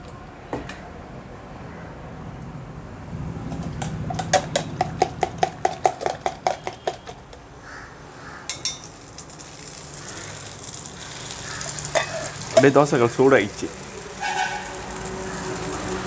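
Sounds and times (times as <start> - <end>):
metal spoon clinking against bowl: 8.5 - 8.9, 11.9 - 12.8
egg sizzling on hot iron: 8.5 - 16.0.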